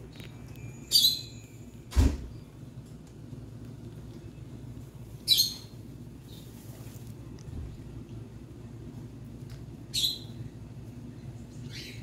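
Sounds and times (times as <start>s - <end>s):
steady low hum: 0.0s - 12.0s
scratchy rustles in wood shavings: 6.2s - 7.5s.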